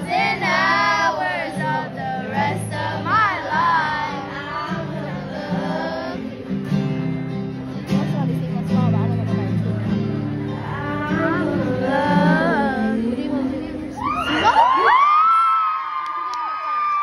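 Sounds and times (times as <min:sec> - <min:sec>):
woman singing into a microphone: 0:00.0 - 0:06.6, 0:09.0 - 0:15.5
acoustic guitar: 0:00.0 - 0:15.6.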